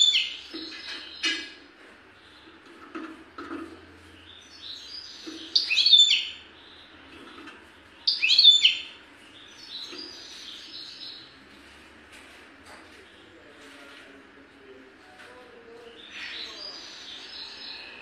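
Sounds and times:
goldfinch singing: 0.0 - 1.5, 4.2 - 6.9, 8.0 - 11.2.

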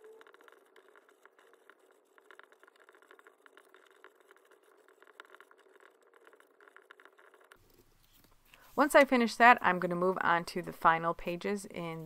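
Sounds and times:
pencil scratching on paper: 0.0 - 8.2.

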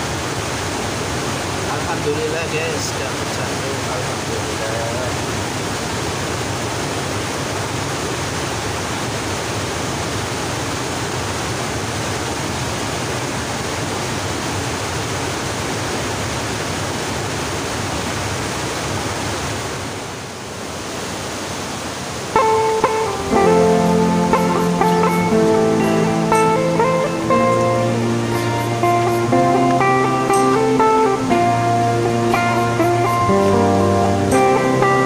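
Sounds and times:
fast-flowing river rushing: 0.0 - 35.0
acoustic guitar music: 22.3 - 35.0.

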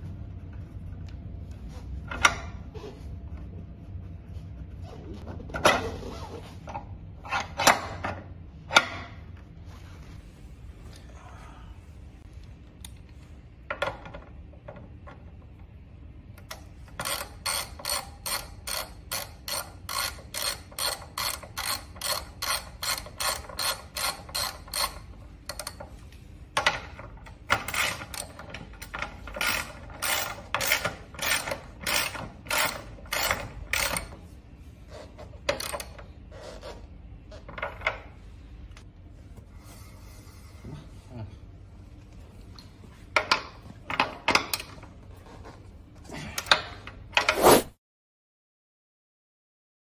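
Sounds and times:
ratchet wrench clicking: 16.5 - 25.8, 29.3 - 34.1.

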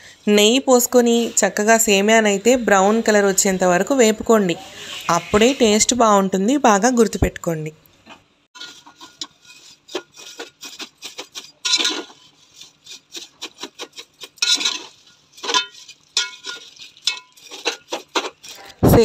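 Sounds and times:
metal spatula scraping a pot: 8.6 - 19.0.

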